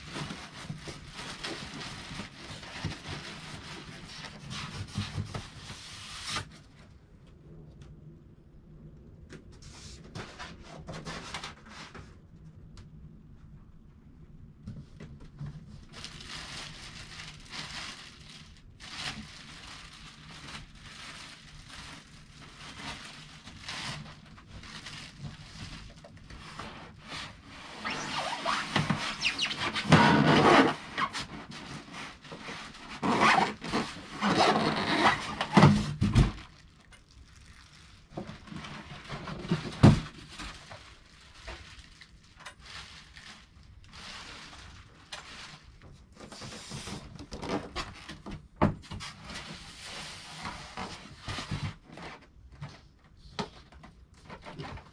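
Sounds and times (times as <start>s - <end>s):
plastic bag rustling: 0.0s - 6.6s, 15.6s - 48.4s
cardboard scraping: 26.4s - 36.4s.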